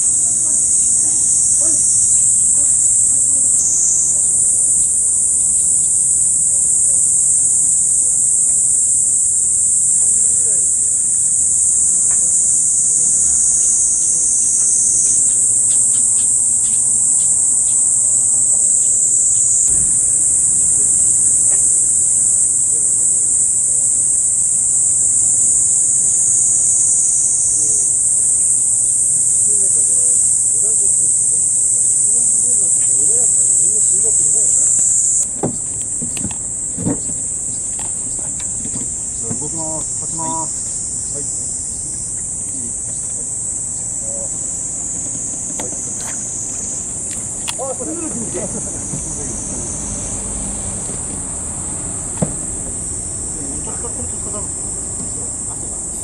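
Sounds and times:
insects shrilling drone: 0:00.0 - 0:56.0
dull knocks: 0:35.3 - 0:39.9, 0:52.1 - 0:52.8.

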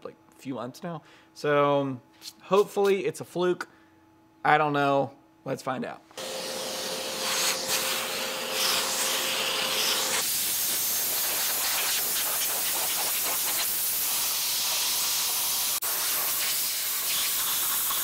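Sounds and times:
shop vacuum whining: 0:06.2 - 0:11.2
air blow gun hissing: 0:06.2 - 0:18.0.

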